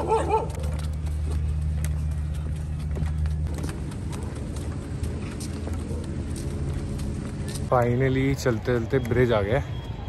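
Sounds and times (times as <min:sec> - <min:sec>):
dog yelping bark: 0:00.0 - 0:00.7
low engine hum: 0:00.0 - 0:07.9
footsteps on stone paving: 0:00.0 - 0:10.0.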